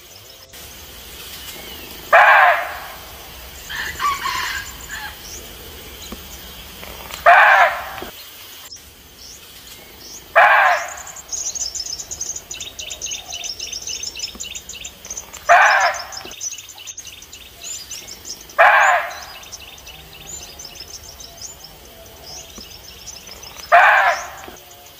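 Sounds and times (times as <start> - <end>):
birds trilling and chirping: 0.0 - 24.9
deer barking: 2.1 - 3.2, 7.2 - 8.1, 10.3 - 11.3, 15.4 - 16.3, 18.6 - 19.5, 23.6 - 24.6.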